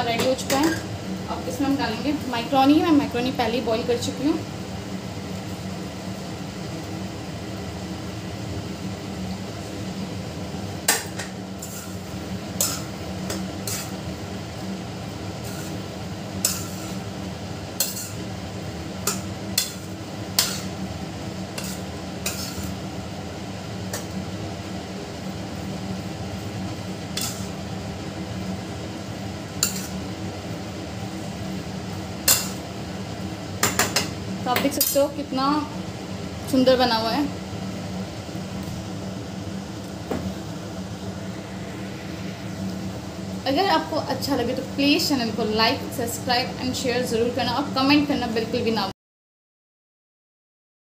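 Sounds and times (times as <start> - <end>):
steady low hum: 0.0 - 48.9
metal spoon scraping a pan: 10.9 - 14.0, 15.4 - 17.1, 17.8 - 18.2, 19.0 - 20.8, 21.5 - 22.8, 27.1 - 27.6, 29.6 - 30.0, 32.3 - 32.6.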